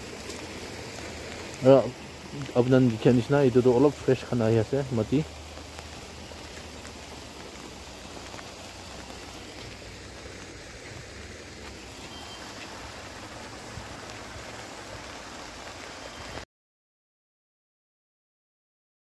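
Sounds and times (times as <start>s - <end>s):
rain falling: 0.0s - 16.4s.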